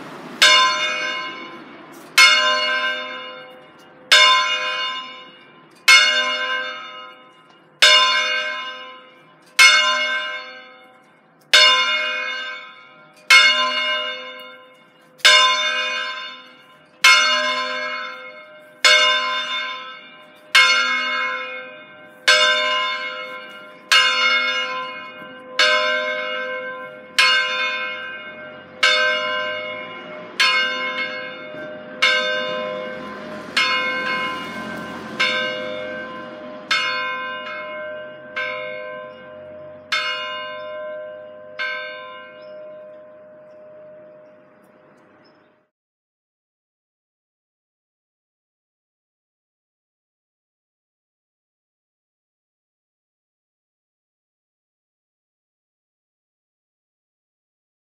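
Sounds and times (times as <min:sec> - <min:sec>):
church bell ringing: 0:00.0 - 0:45.6.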